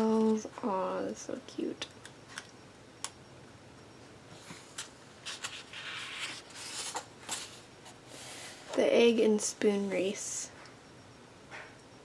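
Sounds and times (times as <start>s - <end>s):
paper rustling slide: 5.2s - 8.7s.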